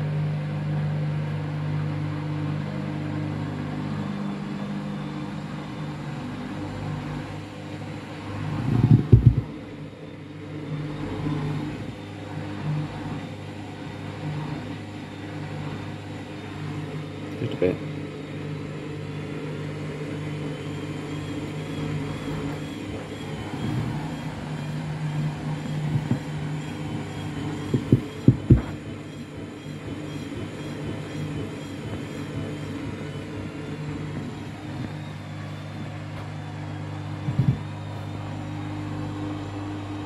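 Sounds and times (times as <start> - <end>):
washing machine running: 0.0 - 40.0
heavy knocks from drum: 8.7 - 9.5, 27.6 - 29.1.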